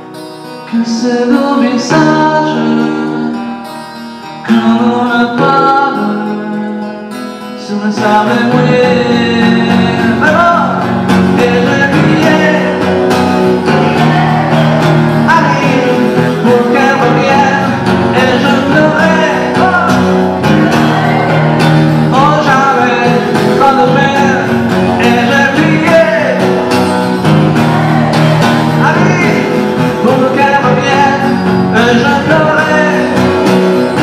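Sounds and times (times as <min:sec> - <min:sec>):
strummed acoustic guitar: 0:00.0 - 0:34.0
sliding lead melody: 0:08.8 - 0:34.0.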